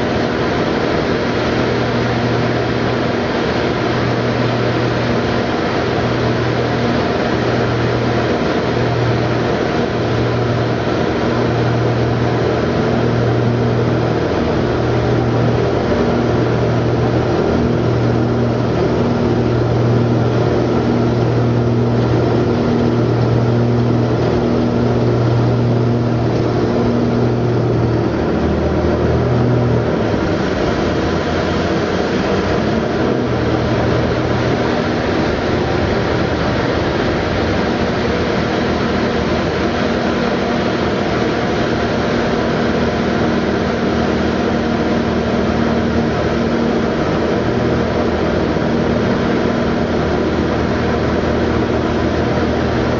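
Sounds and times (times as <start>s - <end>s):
light aircraft engine droning: 0.0s - 52.9s.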